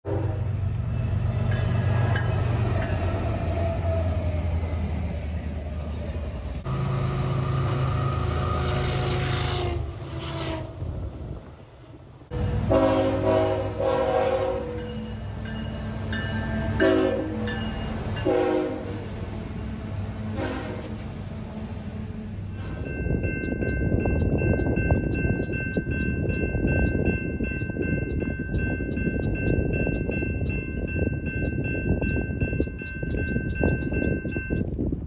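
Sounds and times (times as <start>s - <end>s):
locomotive air horn blasts: 0.0s - 0.5s, 8.1s - 10.8s, 12.3s - 15.0s, 16.5s - 17.6s, 18.2s - 19.1s, 20.3s - 21.6s
diesel locomotive engine rumble: 0.0s - 35.0s
rail noise: 0.0s - 35.0s.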